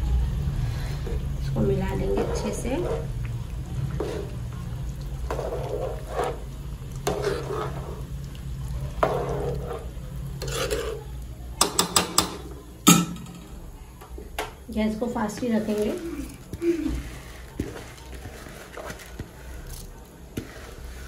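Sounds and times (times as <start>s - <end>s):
water boiling: 0.0s - 21.0s
spoon stirring rice in a pot: 0.9s - 21.0s.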